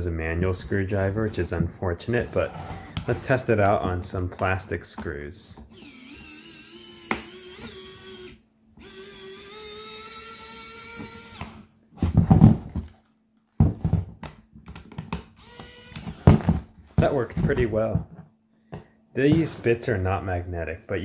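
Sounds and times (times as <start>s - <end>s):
electric screwdriver motor whining: 5.7s - 11.6s, 15.4s - 16.2s.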